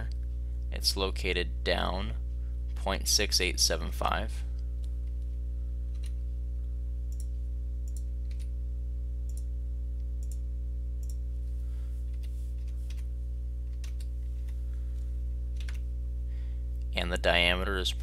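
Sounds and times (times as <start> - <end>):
low electrical hum: 0.0 - 18.0
computer mouse clicks: 7.9 - 8.5.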